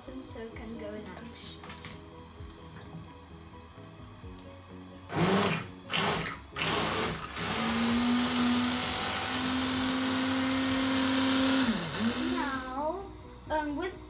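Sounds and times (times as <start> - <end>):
hand blender whining: 5.1 - 12.8.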